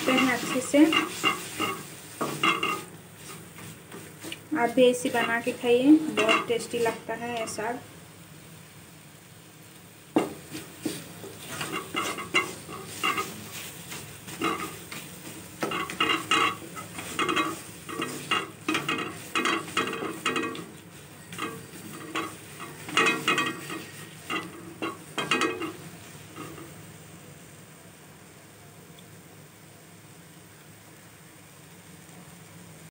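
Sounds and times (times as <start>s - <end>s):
wooden spatula scraping a pan: 0.0s - 7.7s, 10.2s - 26.8s
spatula knocking on pan: 6.1s - 6.8s, 10.1s - 25.8s.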